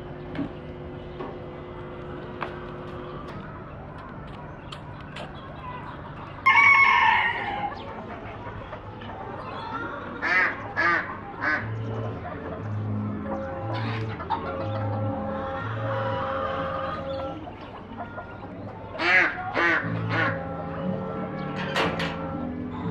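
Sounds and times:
hens clucking: 0.0 - 22.9
rooster crowing: 6.4 - 7.8.

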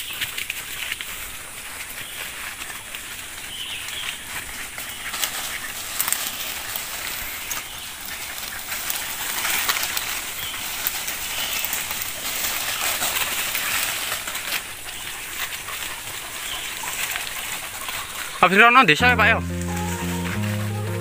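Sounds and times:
leaves and brush rustling: 0.0 - 21.0
small twigs cracking: 2.5 - 18.4.

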